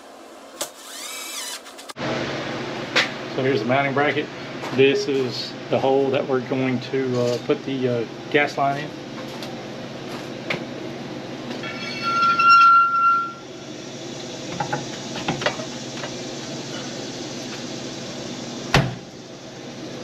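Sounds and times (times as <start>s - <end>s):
cordless drill whining: 0.6s - 1.9s.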